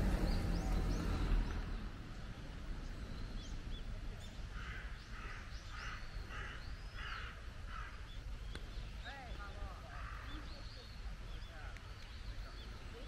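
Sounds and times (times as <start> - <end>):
harsh bird calls: 0.0 - 2.0, 3.0 - 13.0
low steady rumble: 0.0 - 4.4.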